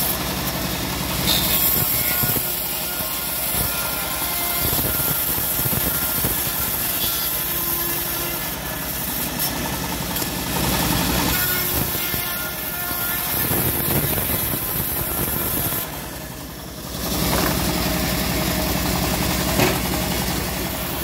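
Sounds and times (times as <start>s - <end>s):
bandsaw sawmill running: 0.0s - 21.0s
stationary engine running: 13.4s - 21.0s.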